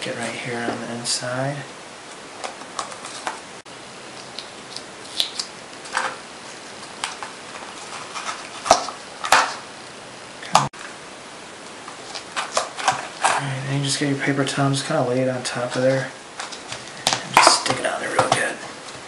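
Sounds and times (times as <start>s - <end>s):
adhesive tape ripping: 4.2s - 5.5s.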